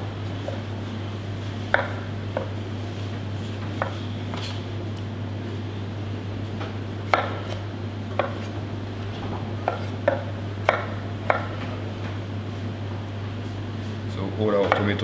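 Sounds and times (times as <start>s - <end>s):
steady low hum: 0.0s - 15.0s
knife striking cutting board: 7.1s - 7.6s.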